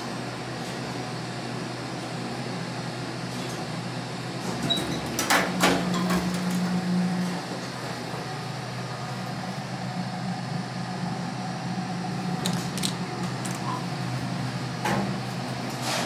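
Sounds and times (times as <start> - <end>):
elevator hum: 0.0 - 15.9.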